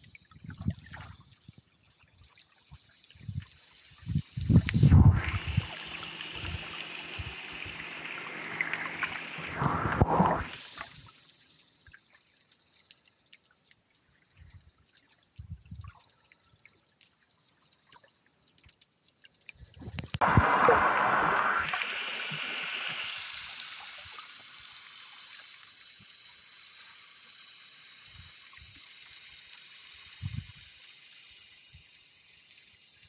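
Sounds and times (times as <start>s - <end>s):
underwater hiss: 2.9s - 12.5s, 20.2s - 33.0s
gurgling rush of air bubbles: 3.2s - 11.1s, 19.8s - 24.5s.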